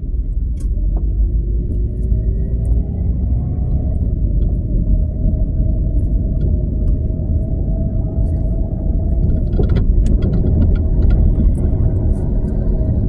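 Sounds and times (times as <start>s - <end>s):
car driving rumble: 0.0s - 13.0s
small clicks and rattles: 9.1s - 13.0s.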